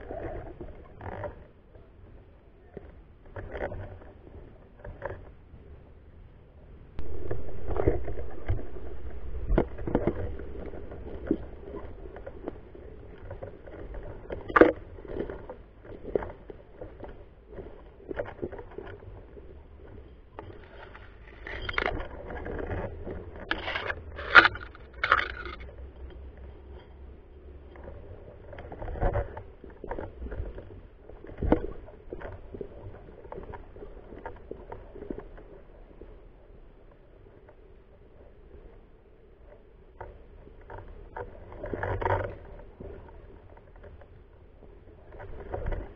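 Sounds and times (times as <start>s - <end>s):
loud low rumble: 7.0s - 13.2s
scraping rustling handling noise: 20.5s - 25.7s.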